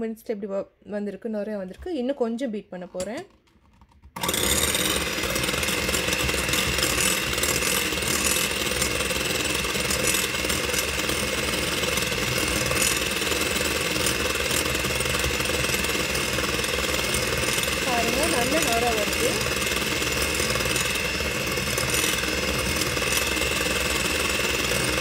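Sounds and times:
electric hand mixer whining: 0:04.0 - 0:25.0
beaters whipping in glass bowl: 0:04.5 - 0:25.0.

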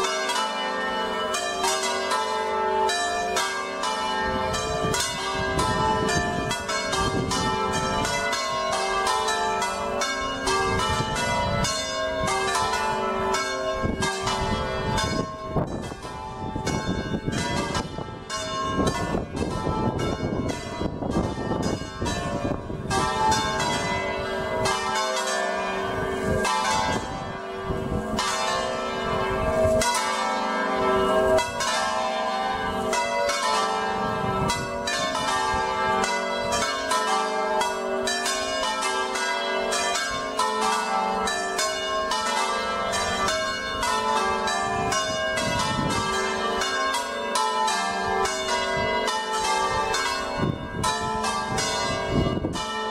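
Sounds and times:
church bells ringing: 0:00.0 - 0:52.9
wind buffeting microphone: 0:04.1 - 0:25.0, 0:25.6 - 0:30.0, 0:30.7 - 0:37.0, 0:41.8 - 0:46.9, 0:48.0 - 0:52.9.

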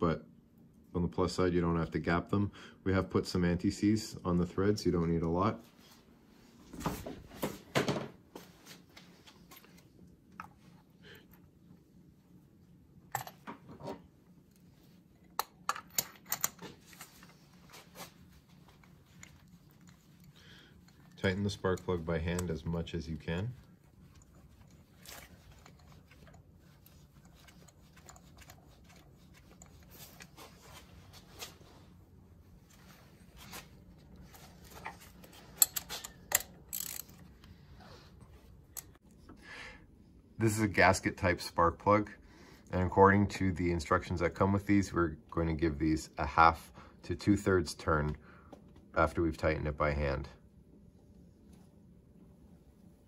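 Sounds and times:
metallic clicks of hand tools: 0:35.6 - 0:37.2.

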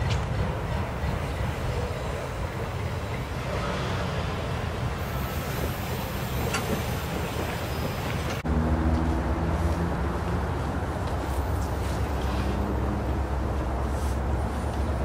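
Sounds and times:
freight train rumbling: 0:00.0 - 0:15.0
vehicles driving over tracks: 0:00.0 - 0:15.0.

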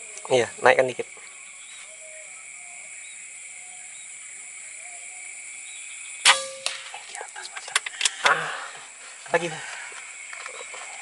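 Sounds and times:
insects droning: 0:00.0 - 0:11.0
rifle gunshot: 0:06.2 - 0:07.0.

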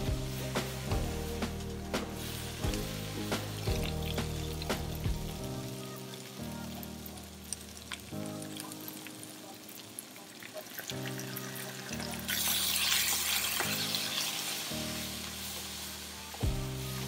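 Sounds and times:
loud hiss of vinegar: 0:00.0 - 0:05.7, 0:11.3 - 0:17.0
background music of held chords: 0:00.0 - 0:10.2, 0:10.8 - 0:17.0
cabbage sizzling in a pan: 0:00.0 - 0:17.0.

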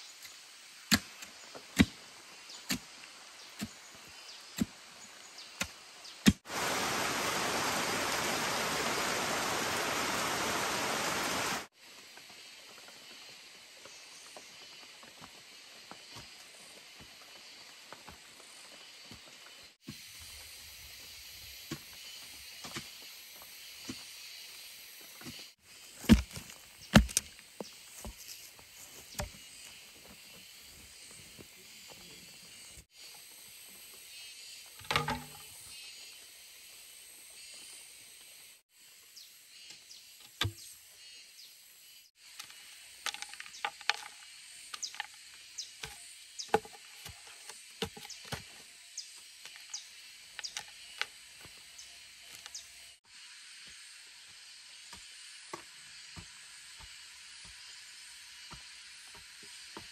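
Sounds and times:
steady high hiss: 0:06.4 - 0:13.6
clicks and knocks on bamboo: 0:26.0 - 0:28.4, 0:34.8 - 0:35.5, 0:42.3 - 0:45.2, 0:45.8 - 0:48.5, 0:50.4 - 0:51.1.

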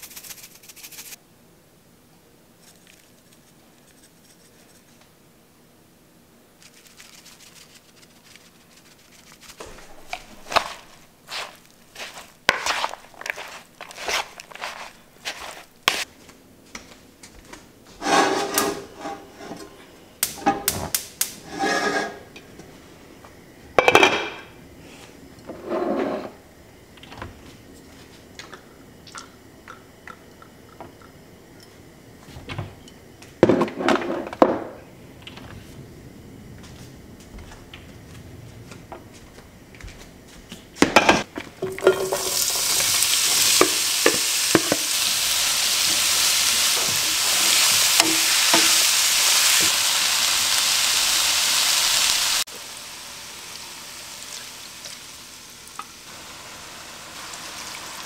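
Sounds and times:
cookware clattering: 0:18.0 - 0:19.8, 0:23.8 - 0:24.5, 0:40.8 - 0:42.9.

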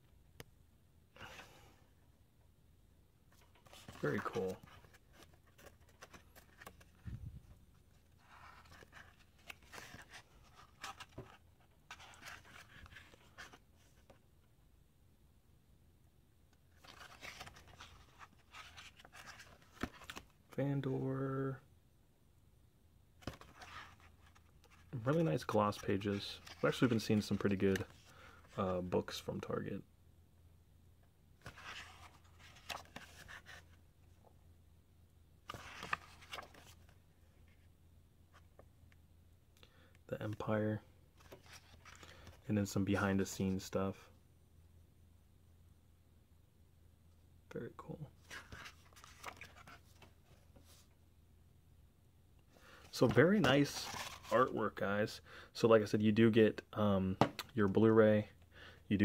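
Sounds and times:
book pages turning: 0:03.3 - 0:07.2, 0:08.1 - 0:13.6, 0:16.8 - 0:20.3, 0:23.2 - 0:28.1, 0:31.4 - 0:33.8, 0:35.4 - 0:37.6, 0:41.2 - 0:42.4, 0:48.2 - 0:50.9, 0:52.9 - 0:54.4.

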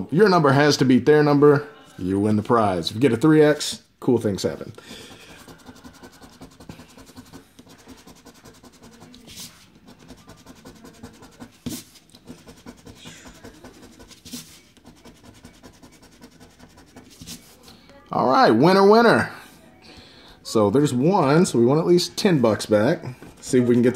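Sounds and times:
scratching lottery ticket: 0:04.3 - 0:17.8, 0:22.7 - 0:23.9.

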